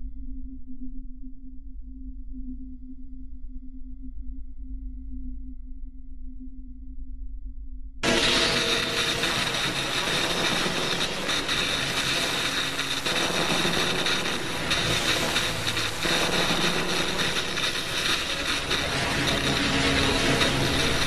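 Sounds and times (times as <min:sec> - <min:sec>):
electronic music over speakers: 0:08.0 - 0:21.0.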